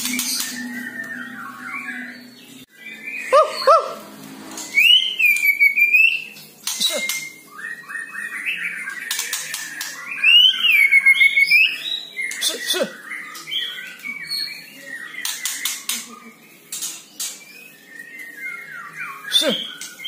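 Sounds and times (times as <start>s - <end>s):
bird singing: 0.0s - 20.0s
bird whistles: 4.7s - 15.9s.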